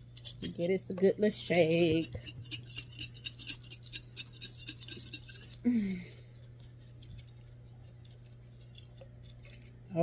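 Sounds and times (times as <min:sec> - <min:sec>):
glass jar rattling with paper: 0:01.4 - 0:05.7.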